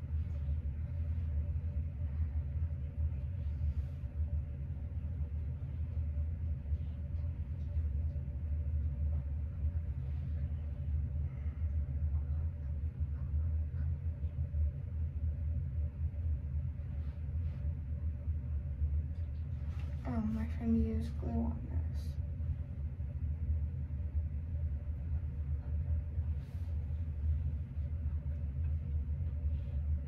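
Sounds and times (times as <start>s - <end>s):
faint steady hum: 0.0s - 30.0s
low rumble: 0.0s - 30.0s.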